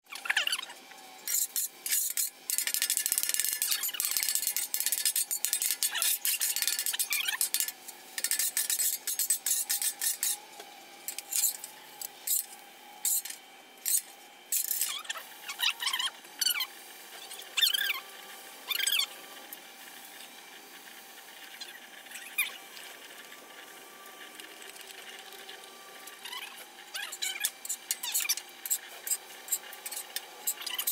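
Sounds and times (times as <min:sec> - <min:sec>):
metal spatula scraping griddle: 0:01.2 - 0:10.4.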